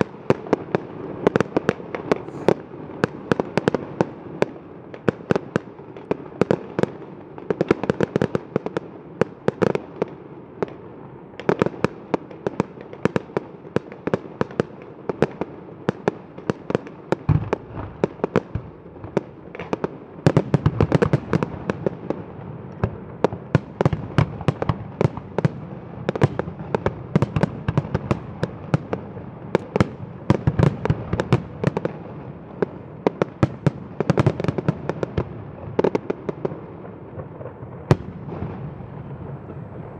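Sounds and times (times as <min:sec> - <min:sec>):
fireworks bangs: 0:00.0 - 0:07.9, 0:17.3 - 0:39.9.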